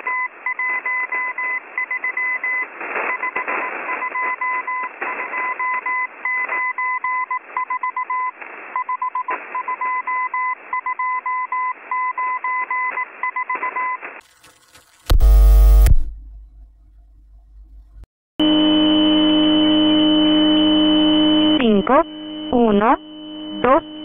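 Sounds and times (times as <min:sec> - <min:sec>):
static crackles: 0:00.4 - 0:09.8, 0:21.4 - 0:24.0
morse code beeps: 0:21.4 - 0:24.0
radio hiss: 0:21.5 - 0:24.0.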